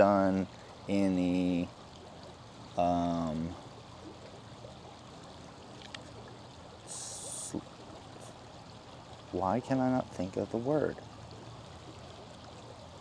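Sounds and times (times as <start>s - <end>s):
stream water flowing: 0.0s - 13.0s
man humming: 6.9s - 7.6s.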